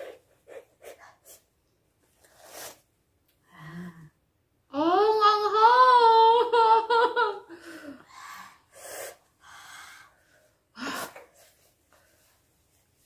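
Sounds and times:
woman's wavering vocal cry: 0:04.7 - 0:07.5.

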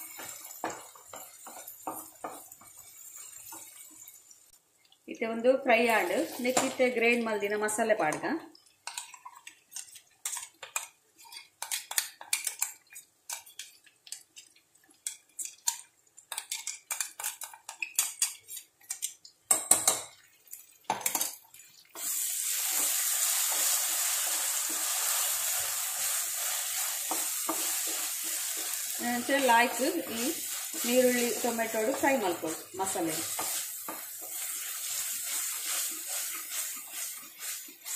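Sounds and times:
wooden spatula scraping and tapping: 0:00.0 - 0:03.9, 0:08.1 - 0:20.1, 0:24.6 - 0:37.9
paste sizzling in oil: 0:00.0 - 0:04.5, 0:05.9 - 0:07.0, 0:21.5 - 0:37.9.

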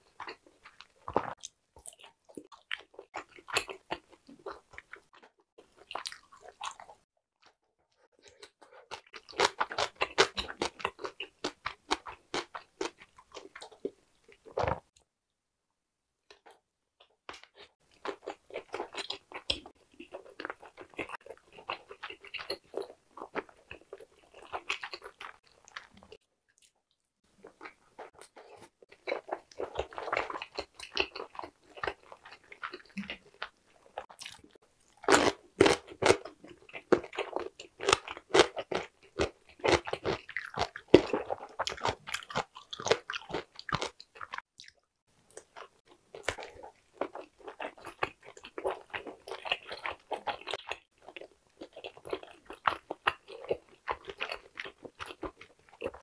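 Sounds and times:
close chewing sounds: 0:00.0 - 0:15.0, 0:16.3 - 0:56.0
crunchy bites: 0:27.4 - 0:56.0.

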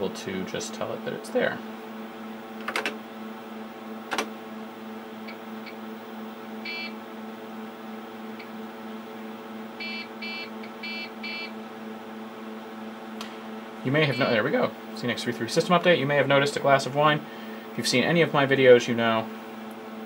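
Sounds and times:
machine hum: 0:00.0 - 0:20.0
keyboard clicks: 0:02.6 - 0:03.0
short buzzer beeps: 0:06.6 - 0:07.0, 0:09.8 - 0:11.5.

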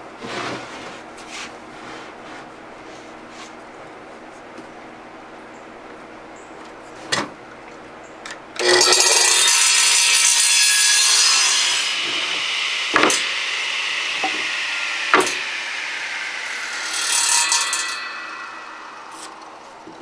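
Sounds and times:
radial arm saw cutting wood: 0:08.6 - 0:20.0
sharp knocks: 0:12.0 - 0:13.4, 0:14.1 - 0:15.6.

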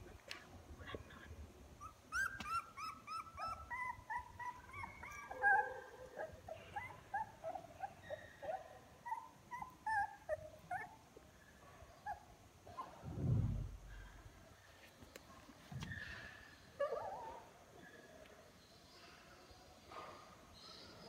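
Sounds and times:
puppies whimpering and squeaking: 0:01.8 - 0:11.0.

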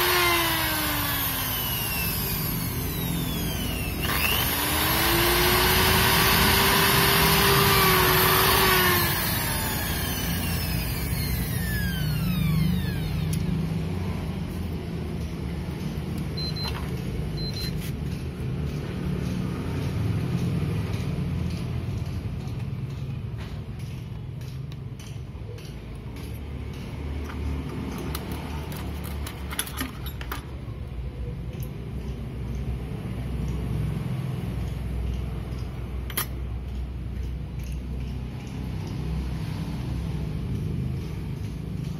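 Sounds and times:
engine droning: 0:00.0 - 0:30.0
short high beeps: 0:17.4 - 0:17.8.

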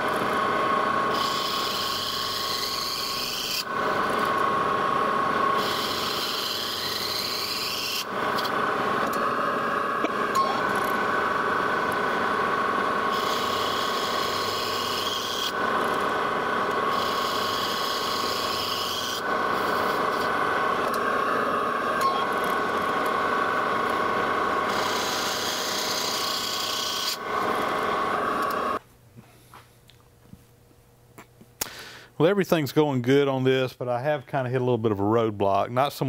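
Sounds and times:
metal lathe whine: 0:00.0 - 0:28.8.

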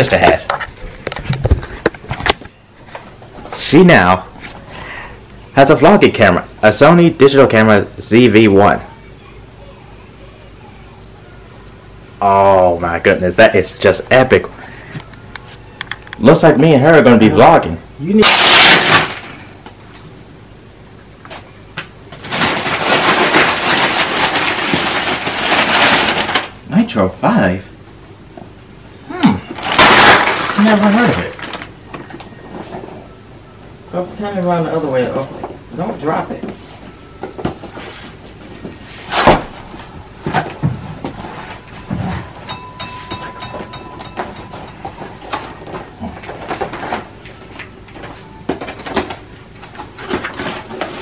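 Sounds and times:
wrapping paper tearing and crumpling: 0:18.2 - 0:19.4, 0:22.2 - 0:26.6, 0:29.6 - 0:31.8.

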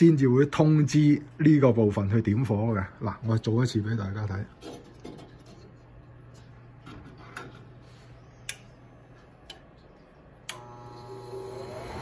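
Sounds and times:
furnace motor humming: 0:05.2 - 0:12.0.

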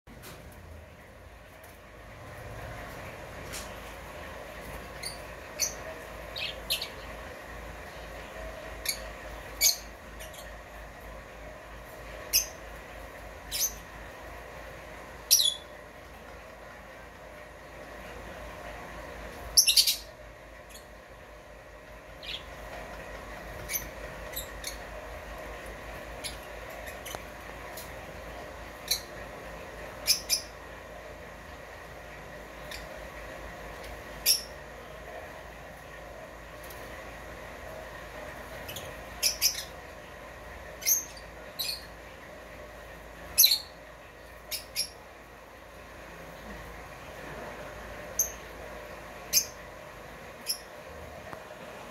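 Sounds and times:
lovebirds chirping: 0:04.6 - 0:11.0, 0:12.2 - 0:12.8, 0:13.4 - 0:14.1, 0:15.2 - 0:15.8, 0:19.5 - 0:21.0, 0:22.0 - 0:22.7, 0:23.5 - 0:25.2, 0:28.7 - 0:30.7, 0:34.1 - 0:34.7, 0:38.5 - 0:40.0, 0:40.7 - 0:42.1, 0:43.3 - 0:45.1.

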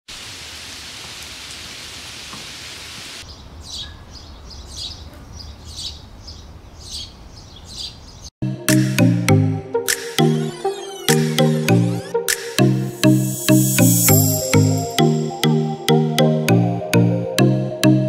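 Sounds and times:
rain-like hiss: 0:00.1 - 0:03.3.

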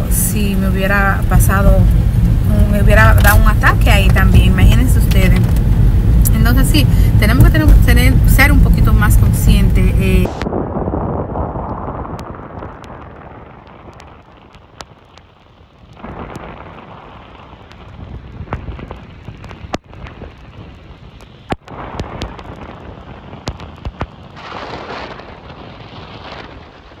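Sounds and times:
road and tyre noise in car: 0:00.0 - 0:10.5.

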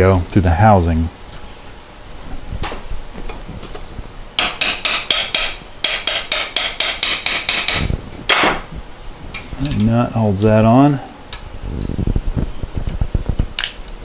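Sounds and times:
hammer tapping on metal: 0:04.4 - 0:08.6.

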